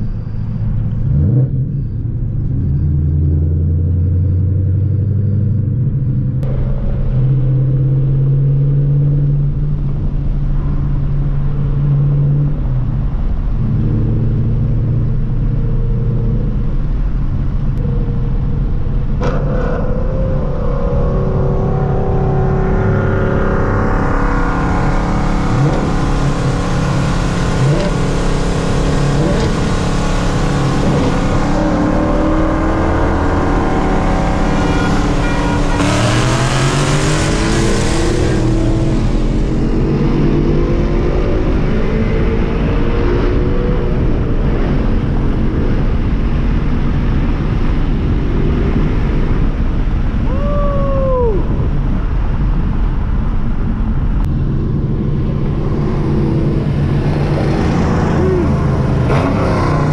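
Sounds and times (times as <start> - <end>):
car exhaust drone: 0.0 - 59.9.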